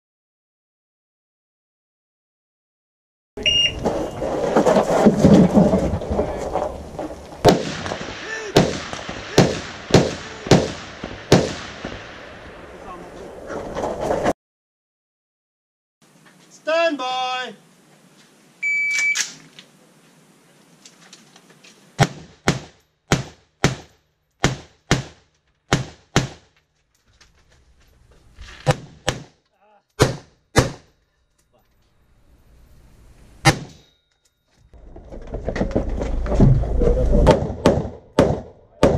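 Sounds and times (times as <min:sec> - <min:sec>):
rifle shots with echo: 0:07.4 - 0:12.6.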